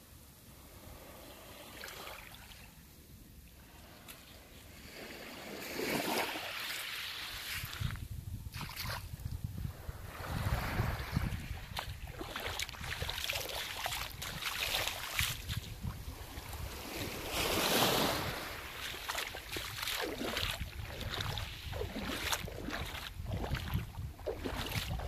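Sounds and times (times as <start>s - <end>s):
wind rumbling on microphone: 7.4s - 25.0s
waves washing onto pebbles: 10.1s - 23.6s.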